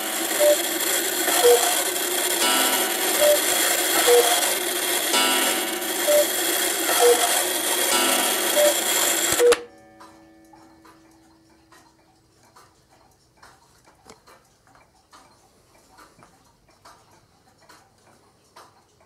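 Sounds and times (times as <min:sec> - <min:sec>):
ringing tone of clock strike: 0:00.0 - 0:12.0
clock ticking: 0:00.0 - 0:19.0.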